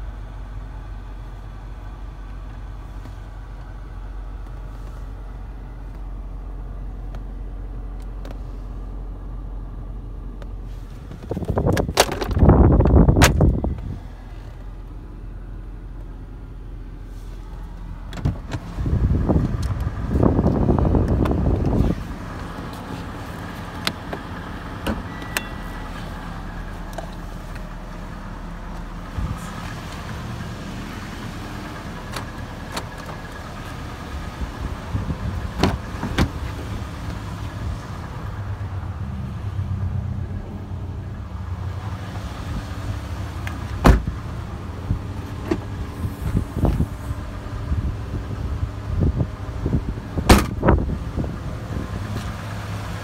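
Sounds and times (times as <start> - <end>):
car engine idling: 0.0 - 53.0
clicks and knocks from car body: 10.4 - 13.9.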